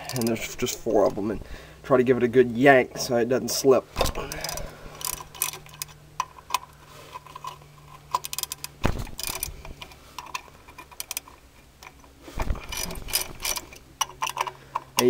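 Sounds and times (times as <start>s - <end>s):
ratchet wrench clicking: 4.3s - 11.3s.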